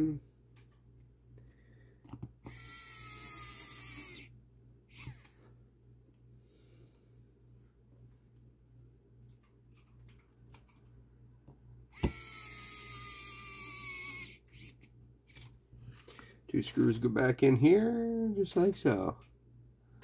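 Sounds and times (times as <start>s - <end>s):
electric screwdriver motor whine: 2.4s - 4.3s, 4.9s - 5.3s, 11.9s - 14.8s.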